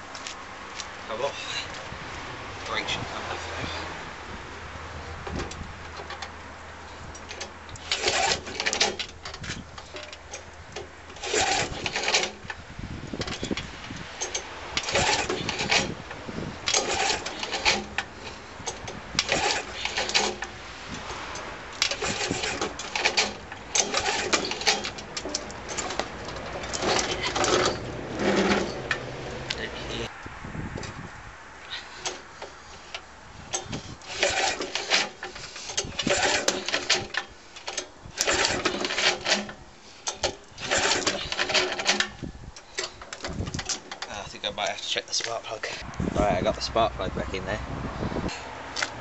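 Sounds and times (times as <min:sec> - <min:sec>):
starter cord pull whirr: 0:11.1 - 0:12.5, 0:14.2 - 0:16.0, 0:16.7 - 0:18.1, 0:18.7 - 0:20.6, 0:21.8 - 0:28.8, 0:33.6 - 0:43.8.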